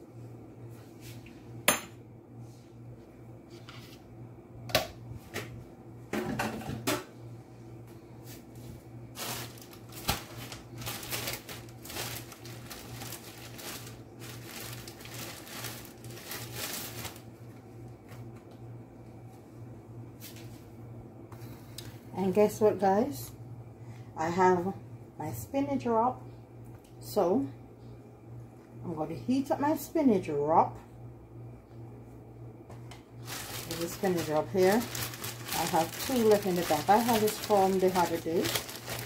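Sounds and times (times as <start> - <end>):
low steady hum: 0.0 - 39.0
crackling rustling noise: 8.3 - 18.4, 33.2 - 39.0.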